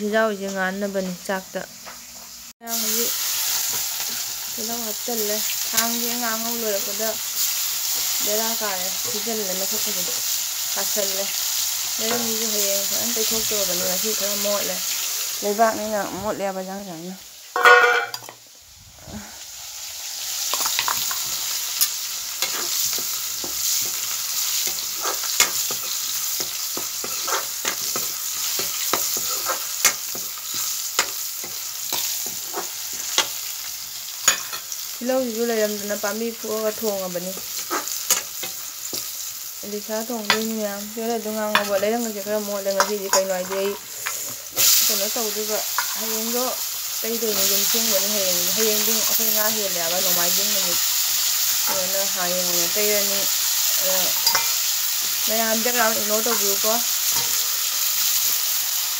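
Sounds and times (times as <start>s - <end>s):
food sizzling in hot oil: 0.0s - 58.9s
ladle scraping a wok: 20.4s - 33.3s, 37.4s - 39.1s.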